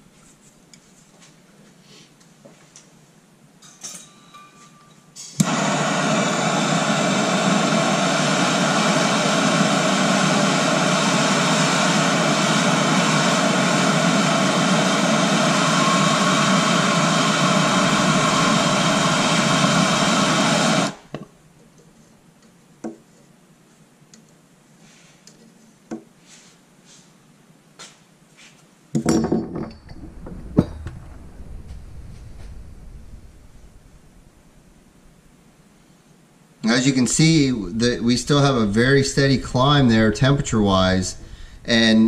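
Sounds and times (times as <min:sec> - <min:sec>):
gas torch flame: 0:05.2 - 0:21.2, 0:29.7 - 0:35.7, 0:36.8 - 0:42.0.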